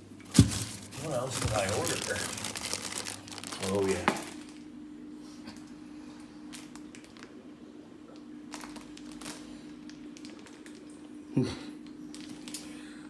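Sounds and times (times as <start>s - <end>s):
steady hum: 0.0s - 13.0s
plastic bag crinkling: 0.3s - 4.7s, 6.5s - 7.4s, 8.5s - 11.1s, 12.1s - 12.7s.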